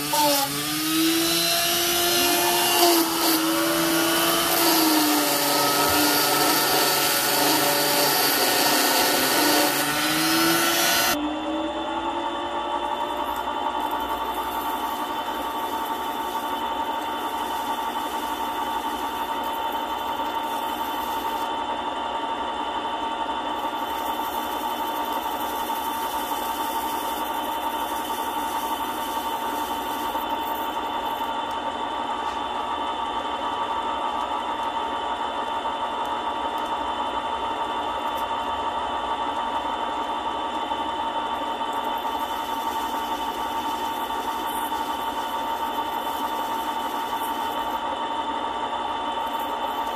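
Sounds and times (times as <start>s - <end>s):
lathe motor whining: 0.0s - 49.9s
sanding strip against ring: 13.3s - 21.5s, 23.7s - 31.2s, 41.9s - 47.8s.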